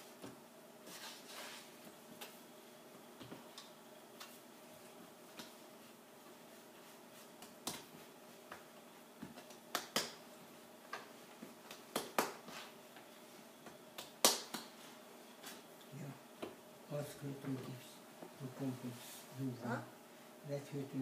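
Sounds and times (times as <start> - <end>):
hands slapping dough on wood: 5.3 - 5.6, 7.2 - 10.2, 10.8 - 14.9.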